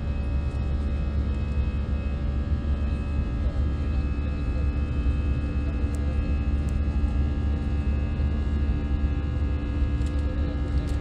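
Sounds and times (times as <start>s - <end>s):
jet engines humming in cabin: 0.0s - 11.0s.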